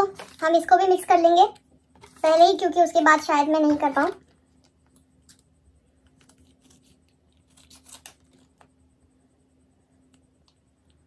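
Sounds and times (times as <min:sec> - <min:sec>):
scissors cutting plastic: 0:06.2 - 0:08.7.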